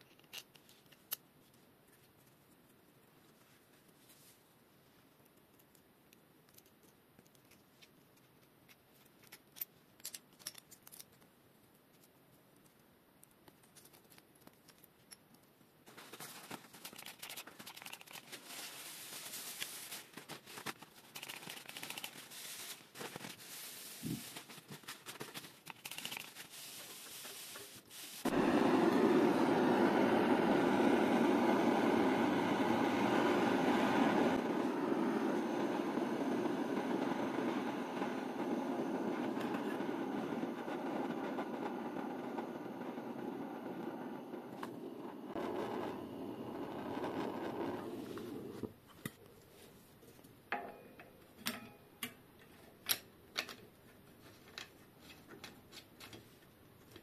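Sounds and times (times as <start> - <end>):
small metal parts clicking: 9.1 - 11.2
gas torch hissing: 18.4 - 20.1, 22.2 - 22.8, 26.5 - 48.7
spray bottle spritzes: 21.2 - 24.5.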